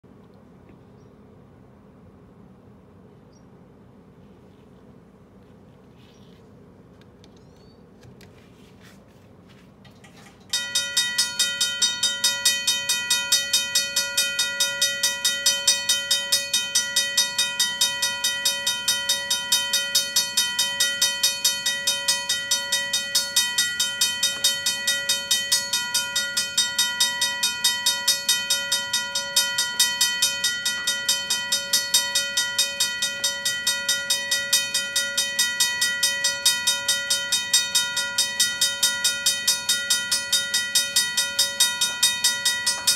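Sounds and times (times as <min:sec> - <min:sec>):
railroad crossing bell ringing: 0:10.0 - 0:42.9.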